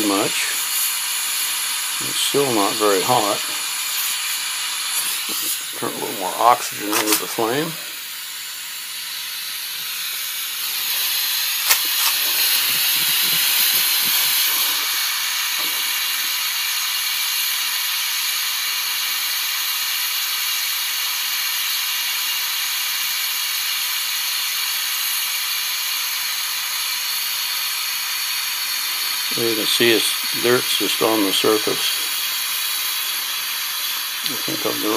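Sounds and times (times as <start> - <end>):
welding torch flame hissing: 0.0 - 34.9
sharp click: 6.9 - 7.3, 11.6 - 12.5.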